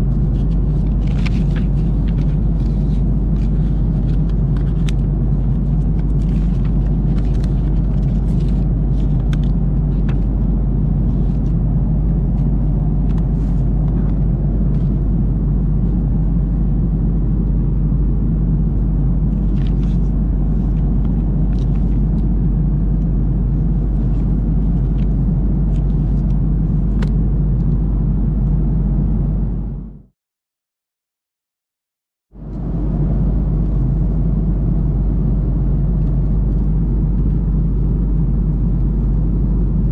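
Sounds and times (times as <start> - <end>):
airplane cabin drone: 0.0 - 30.1, 32.4 - 39.9
paper rustling: 0.1 - 11.6, 19.4 - 22.2.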